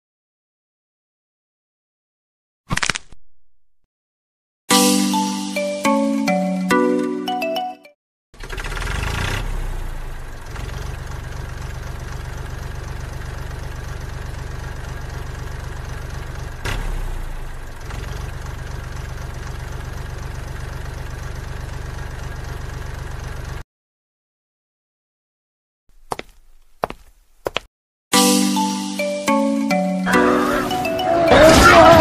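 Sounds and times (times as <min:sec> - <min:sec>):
toy truck engine running: 0:08.4 - 0:09.5.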